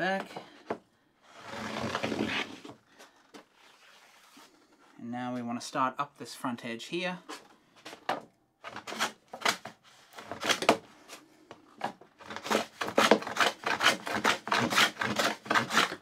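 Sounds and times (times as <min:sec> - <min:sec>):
plane strokes scraping wood: 0:01.4 - 0:02.7.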